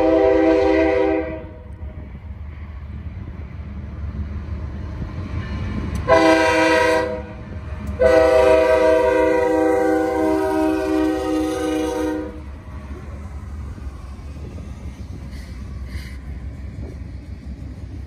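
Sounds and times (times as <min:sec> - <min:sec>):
locomotive air horn blasts: 0:00.0 - 0:01.7, 0:06.1 - 0:07.4, 0:08.0 - 0:12.5
train rolling: 0:00.0 - 0:18.0
diesel engine rumble: 0:01.4 - 0:18.0.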